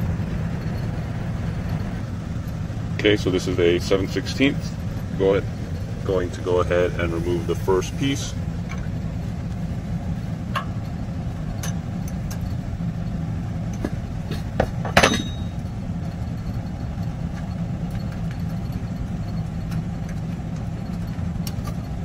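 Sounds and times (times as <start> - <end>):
steady low hum: 0.0 - 22.0
wrench clinking on metal nut: 13.7 - 15.6.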